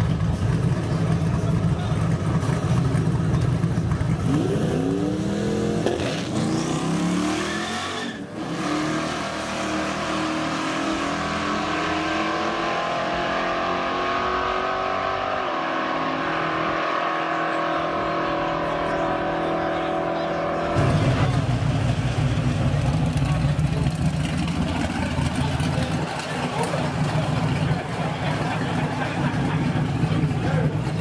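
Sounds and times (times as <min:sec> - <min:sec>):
car engine revving: 0:00.5 - 0:31.0
steady engine drone: 0:08.3 - 0:31.0.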